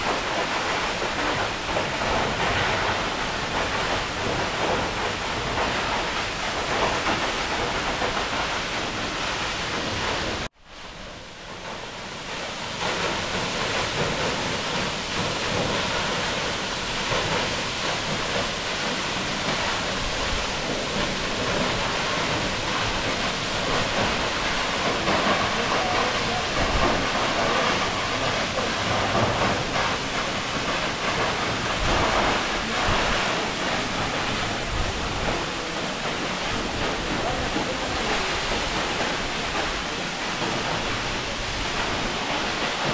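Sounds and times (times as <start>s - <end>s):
waterfall rushing onto rocks: 0.0s - 42.9s.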